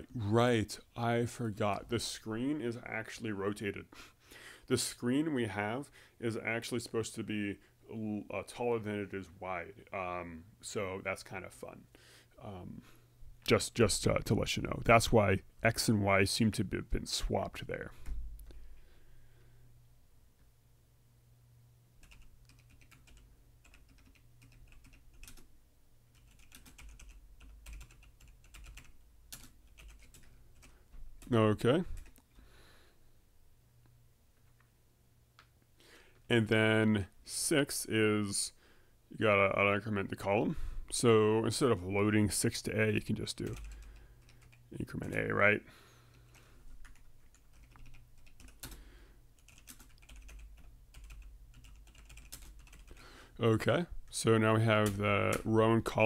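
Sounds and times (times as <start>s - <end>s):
computer keyboard typing: 22.0s - 25.5s, 26.1s - 31.3s, 32.0s - 32.2s, 43.4s - 45.2s, 46.1s - 48.8s, 49.4s - 53.0s.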